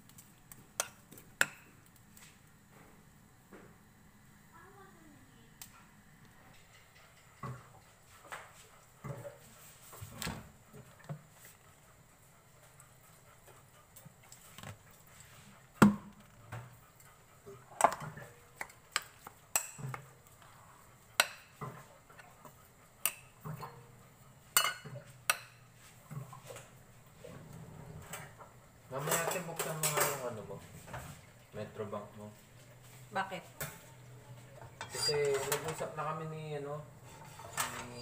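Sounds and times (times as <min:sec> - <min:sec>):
kitchenware clinking and knocking: 0:24.5 - 0:26.5, 0:29.0 - 0:31.1, 0:34.6 - 0:36.0, 0:37.1 - 0:38.0.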